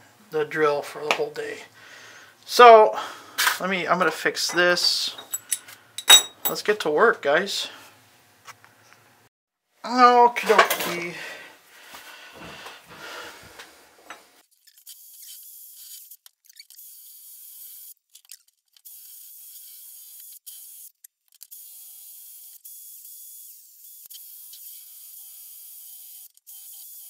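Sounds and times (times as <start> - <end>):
handling clatter: 5.1 - 6.6.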